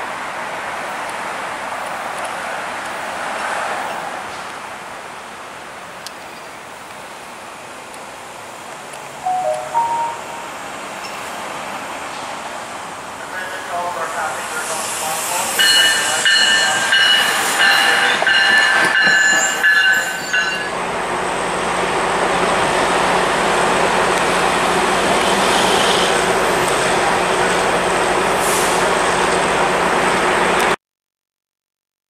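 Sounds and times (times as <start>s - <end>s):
low hum from trains: 0.0s - 30.8s
train rolling rumble and hiss: 0.0s - 30.8s
train wheels squealing: 15.0s - 20.7s.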